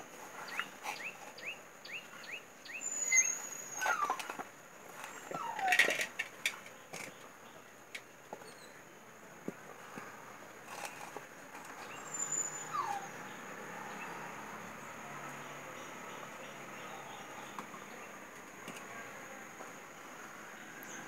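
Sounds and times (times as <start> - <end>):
dog whimpering: 5.3 - 5.8.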